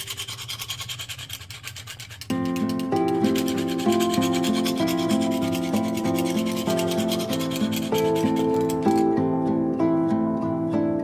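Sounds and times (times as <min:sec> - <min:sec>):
knife scraping sharpening rod: 0:00.0 - 0:09.2
background music with plucked notes: 0:02.3 - 0:11.0.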